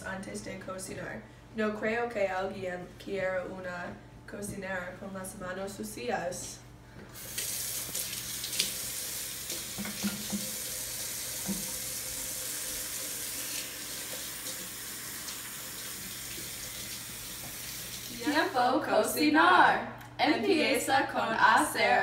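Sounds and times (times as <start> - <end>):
faucet running into a steel sink: 7.2 - 18.1.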